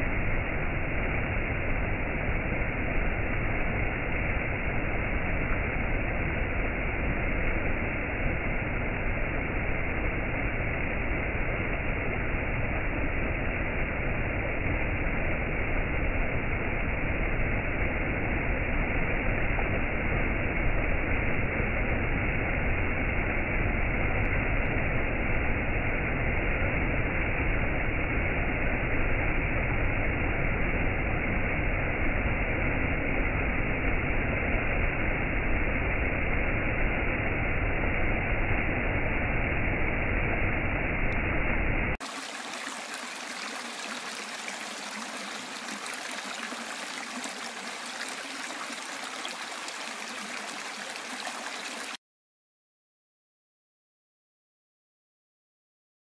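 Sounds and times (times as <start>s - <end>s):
stream water rushing over rocks: 42.0s - 52.0s.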